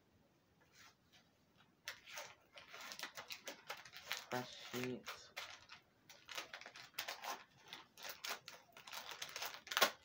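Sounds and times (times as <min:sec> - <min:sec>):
small objects clicking and rustling: 0:02.6 - 0:10.0.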